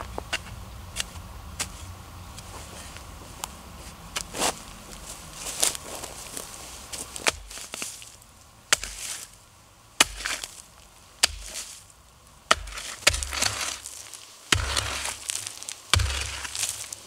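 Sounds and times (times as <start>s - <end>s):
earth scraping and crumbling: 0.0s - 9.4s, 10.0s - 11.9s, 12.5s - 17.0s
hoe chopping into soil: 7.2s - 7.9s, 8.7s - 9.3s, 10.0s - 10.6s, 11.2s - 11.8s, 12.5s - 17.0s.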